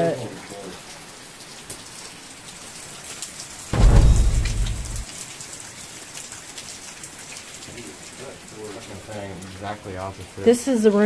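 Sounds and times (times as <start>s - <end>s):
water dripping and trickling: 0.0s - 11.0s
deep rumble: 3.8s - 5.0s.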